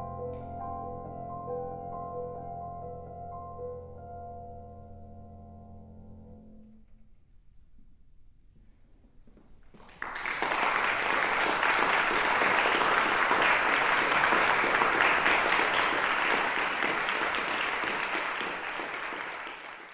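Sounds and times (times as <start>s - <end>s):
audience applauding: 9.8s - 19.9s.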